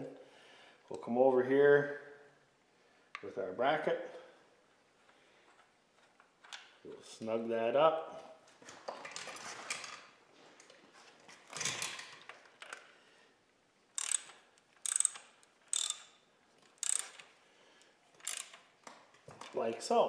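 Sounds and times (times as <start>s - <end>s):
ratchet wrench clicking: 14.0s - 16.2s, 16.8s - 17.3s, 18.2s - 18.7s.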